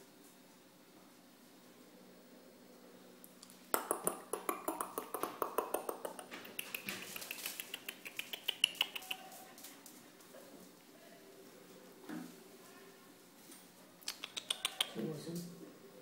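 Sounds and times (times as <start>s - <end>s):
puppy claws clicking on tiled floor: 3.4s - 10.4s, 14.0s - 15.0s.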